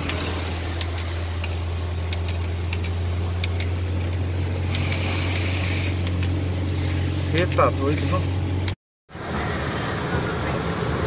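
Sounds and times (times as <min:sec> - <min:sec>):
light ticks on vehicle: 0:00.0 - 0:05.0
vehicle engine drone: 0:00.0 - 0:11.0
tyre hiss on wet road: 0:04.6 - 0:08.5, 0:09.1 - 0:11.0.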